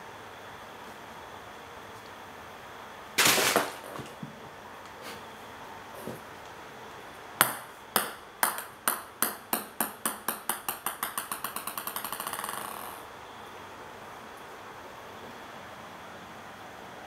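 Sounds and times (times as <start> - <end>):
ping-pong ball bouncing on wooden floor: 7.4 - 13.1.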